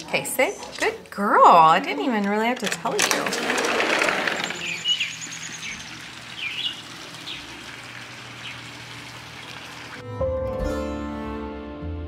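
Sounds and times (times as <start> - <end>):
birds chirping: 3.8 - 9.9.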